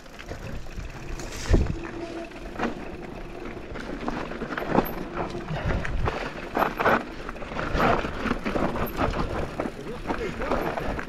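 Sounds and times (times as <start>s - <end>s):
tyres crunching over stones: 0.0s - 11.0s
bike frame knocks and rattles: 0.1s - 11.0s.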